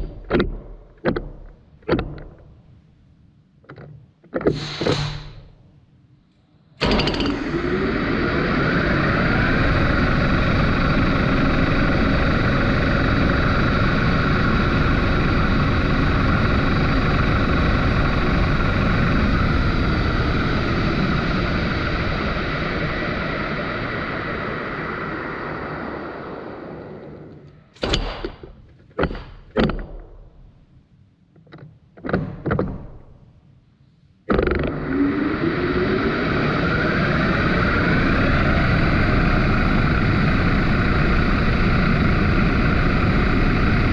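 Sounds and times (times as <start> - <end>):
lathe spinning with a whine: 6.8 - 27.7, 34.3 - 43.9.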